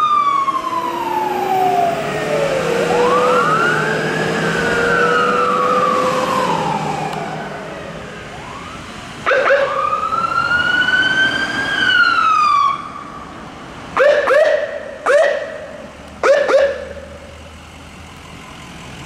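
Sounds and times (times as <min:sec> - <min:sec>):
siren chirps: 0:00.0 - 0:13.2
emergency sirens wailing: 0:00.0 - 0:19.0.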